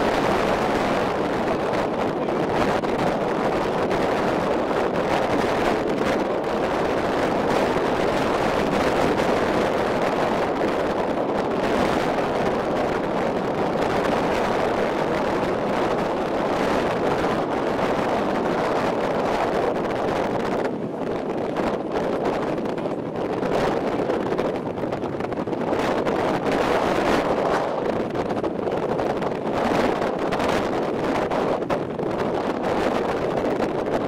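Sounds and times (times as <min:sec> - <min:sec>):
ship engine: 0:00.0 - 0:34.0
wind buffeting microphone: 0:00.0 - 0:34.0.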